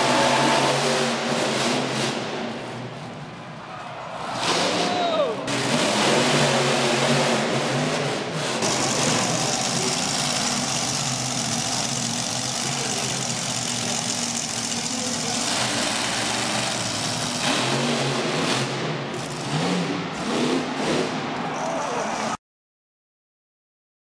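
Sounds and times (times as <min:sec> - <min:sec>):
monster truck engine running: 0:00.0 - 0:03.2, 0:05.5 - 0:21.3.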